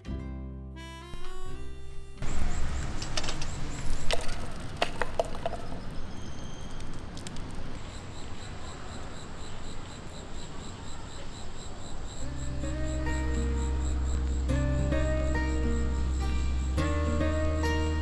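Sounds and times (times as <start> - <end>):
insect chirping: 1.2 - 18.0
sharp clicks and knocks: 2.3 - 6.0
steady low rumble: 12.3 - 17.5.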